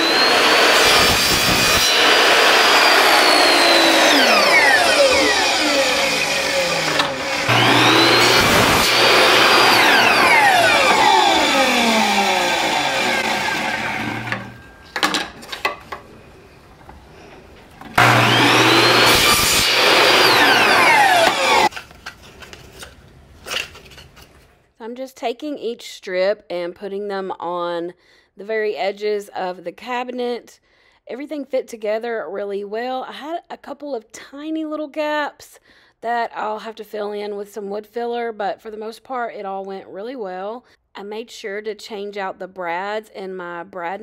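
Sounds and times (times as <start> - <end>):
saw cutting thin wood: 0.0 - 14.7, 18.0 - 21.7
miter saw motor whining: 0.0 - 14.8, 18.0 - 21.7.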